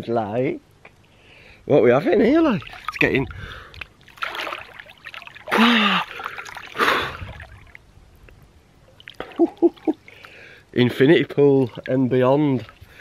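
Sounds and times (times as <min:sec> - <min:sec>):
short sharp breaths: 0:01.1 - 0:01.7, 0:03.3 - 0:03.8, 0:10.1 - 0:10.7
water splashing: 0:02.2 - 0:07.9, 0:08.8 - 0:13.0
man gasping: 0:05.5 - 0:07.3.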